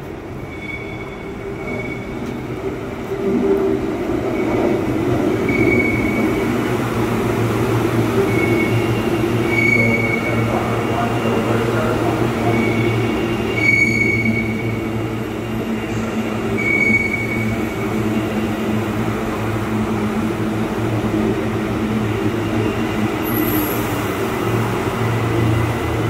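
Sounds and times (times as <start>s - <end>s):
train rumbling: 0.0s - 26.0s
train wheels squealing: 0.4s - 2.5s, 4.3s - 6.6s, 8.2s - 18.7s, 22.2s - 26.0s.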